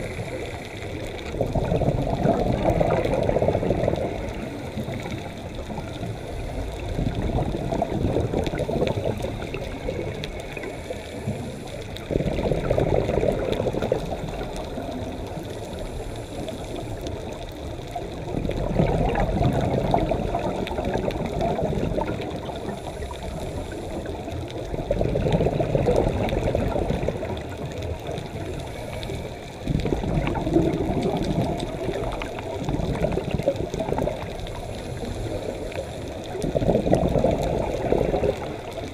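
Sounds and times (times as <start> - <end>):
diver's exhaled bubbles rumbling: 0.0 - 38.9
underwater hiss: 0.0 - 38.9.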